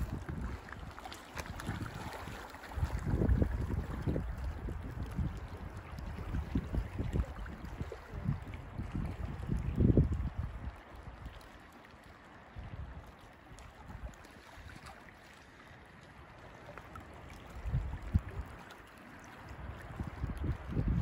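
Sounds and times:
wind buffeting microphone: 0.0 - 11.4, 17.4 - 18.7, 19.5 - 21.0.

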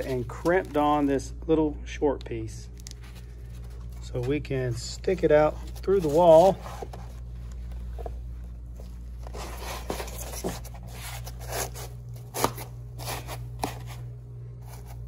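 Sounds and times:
foam insulation scraping and rustling: 5.1 - 7.1.

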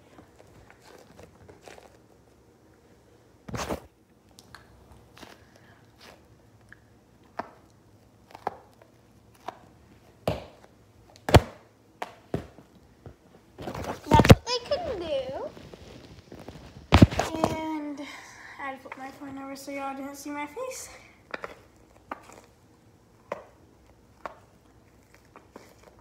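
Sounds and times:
sticky balls slapping a wall: 8.4 - 14.4.

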